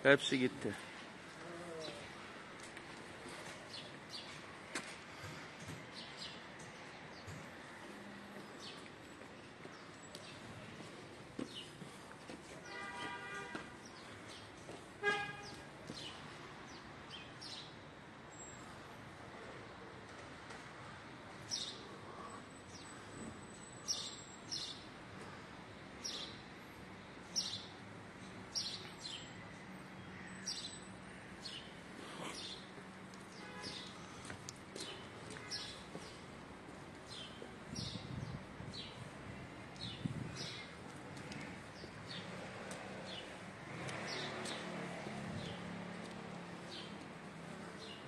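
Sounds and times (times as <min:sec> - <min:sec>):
faint street hum: 0:00.0 - 0:48.0
footsteps on stone steps: 0:10.8 - 0:14.9
car horn toots: 0:15.0 - 0:15.6.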